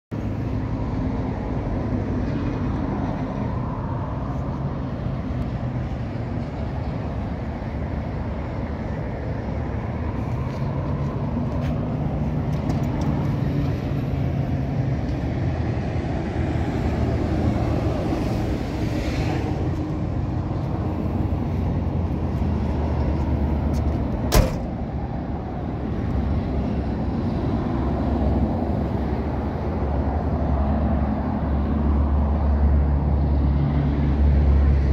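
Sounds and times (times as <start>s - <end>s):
car door shutting: 24.3s - 24.8s.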